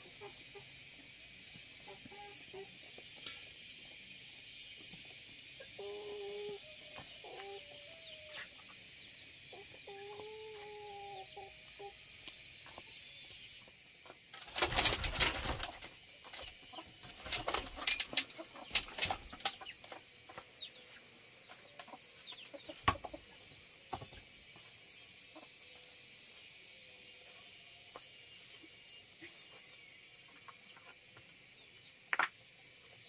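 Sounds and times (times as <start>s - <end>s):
chickens flapping wings: 14.3s - 19.6s.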